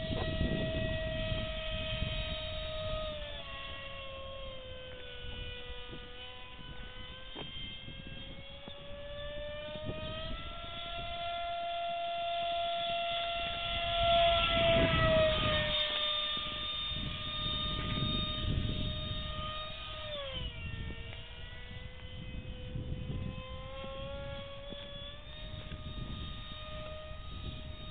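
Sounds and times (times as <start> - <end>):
model airplane motor whining: 0.0 - 27.9.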